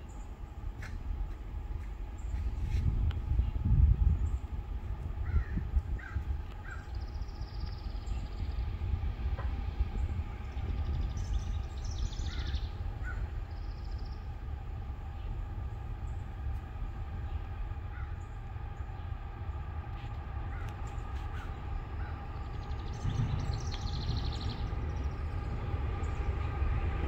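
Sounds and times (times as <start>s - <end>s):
distant freight train rumble: 0.0s - 27.0s
crows cawing: 5.2s - 6.8s
small bird singing: 10.0s - 14.3s, 21.0s - 26.5s.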